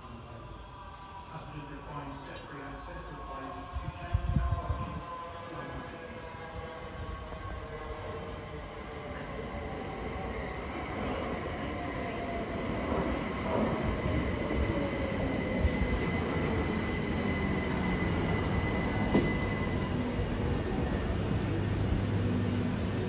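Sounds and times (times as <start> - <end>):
electric train arriving: 0.0 - 23.0
high-pitched wheel squeal: 16.8 - 20.3.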